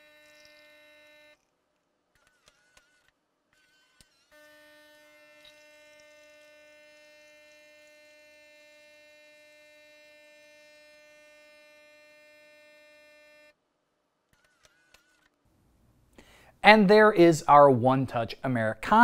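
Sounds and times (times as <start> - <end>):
espresso machine pump buzzing: 0.0 - 1.4, 3.6 - 13.5.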